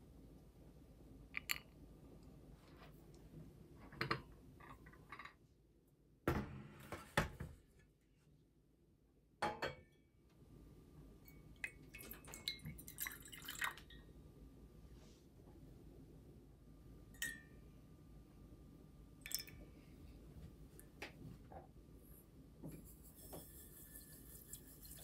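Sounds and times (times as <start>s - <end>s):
syrup dripping into glass cups: 11.3s - 14.0s, 19.2s - 19.6s
glass clinks: 17.2s - 17.6s.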